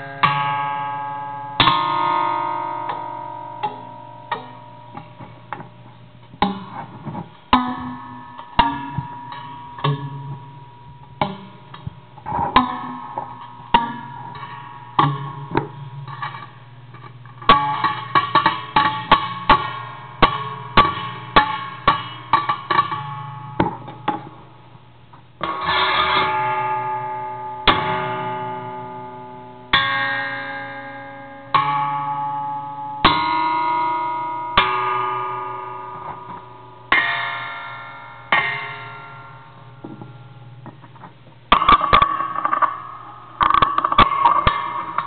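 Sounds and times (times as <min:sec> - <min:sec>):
stick striking ringing metal box: 0:00.0 - 0:24.7, 0:25.4 - 0:45.0
springs plucked and flicked: 0:01.6 - 0:30.2, 0:31.5 - 0:45.0.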